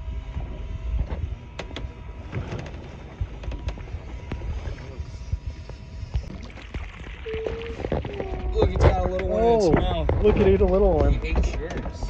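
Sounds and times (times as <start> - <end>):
wind rumbling on microphone: 0.0 - 12.0
scattered clicks and knocks: 7.7 - 12.0.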